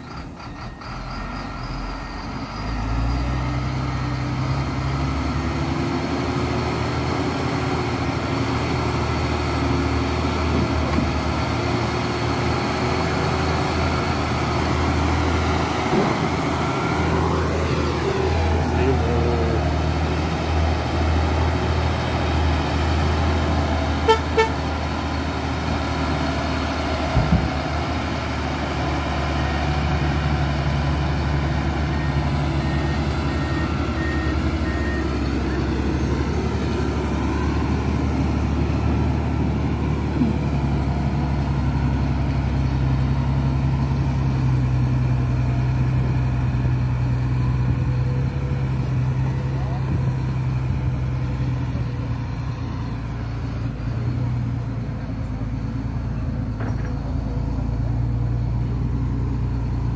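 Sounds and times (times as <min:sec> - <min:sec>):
truck diesel engine running: 0:00.0 - 0:59.9
truck horn toots: 0:24.0 - 0:24.8
thump: 0:27.1 - 0:27.5, 0:56.6 - 0:57.0.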